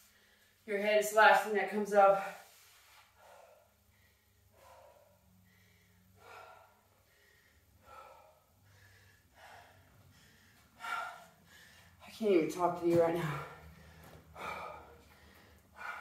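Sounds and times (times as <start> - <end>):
woman breathing hard: 2.4 - 12.0, 13.2 - 16.0.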